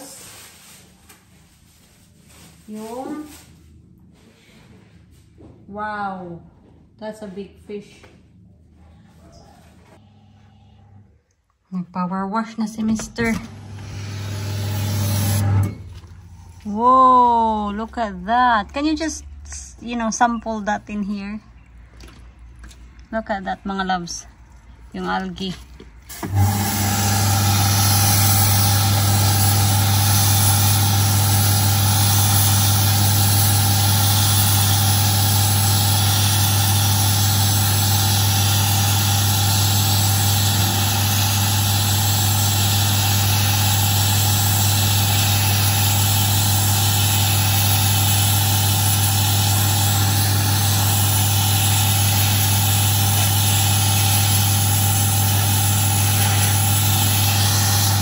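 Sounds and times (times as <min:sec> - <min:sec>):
pressure washer humming: 0:12.8 - 0:19.5, 0:25.0 - 0:58.0
water jet spraying on paving: 0:26.1 - 0:58.0.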